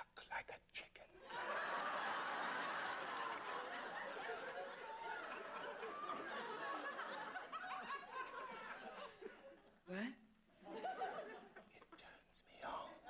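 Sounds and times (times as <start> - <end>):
studio audience laughing: 1.3 - 9.8, 10.6 - 11.7.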